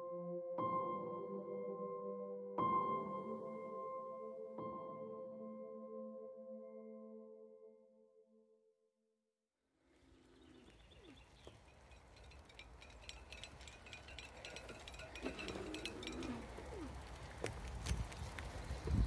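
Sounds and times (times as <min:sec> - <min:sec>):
bike clinking and rattling: 0:10.8 - 0:18.9
tyres rumbling on ground: 0:11.1 - 0:19.0.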